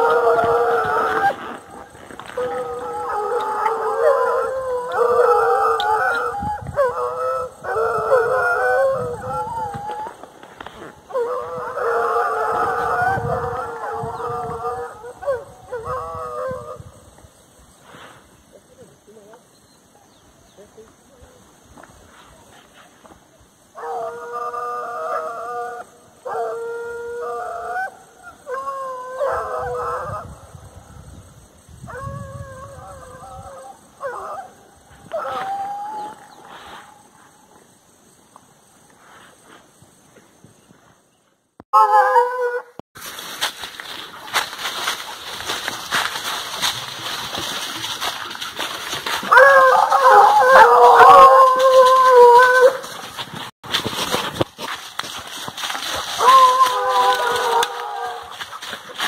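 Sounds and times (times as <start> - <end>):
hounds baying: 0.0 - 10.1, 23.8 - 30.4, 44.2 - 53.3, 55.8 - 59.0.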